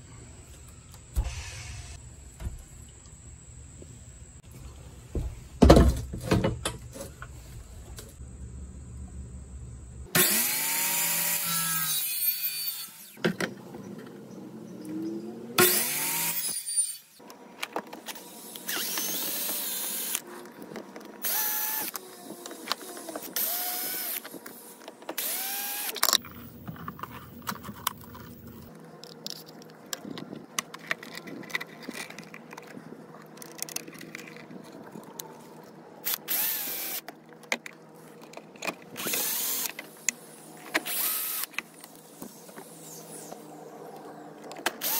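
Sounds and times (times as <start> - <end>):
miter saw cutting: 10.1 - 13.2
cordless drill driving screws: 25.2 - 26.0, 36.1 - 37.0, 39.0 - 39.8, 40.8 - 41.5.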